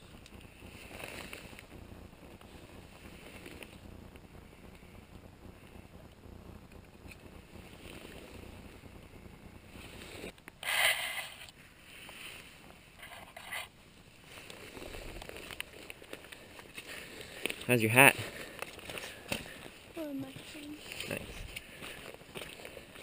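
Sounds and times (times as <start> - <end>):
ferns and fabric rustling: 0.0 - 4.4
wind and handling noise: 0.0 - 23.0.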